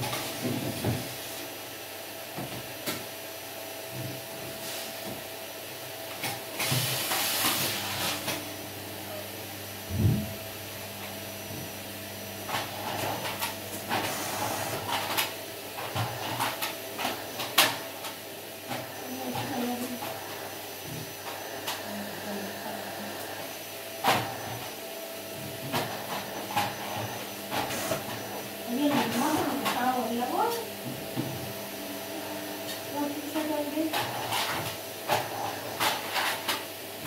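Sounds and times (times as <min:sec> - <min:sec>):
vacuum cleaner humming: 0:00.0 - 0:37.0.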